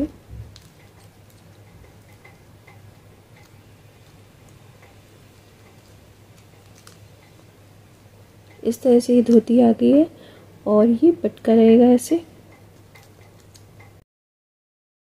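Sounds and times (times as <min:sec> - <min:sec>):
low steady hum: 0:00.0 - 0:14.0
small ticks and clicks: 0:00.4 - 0:09.5, 0:12.5 - 0:14.0.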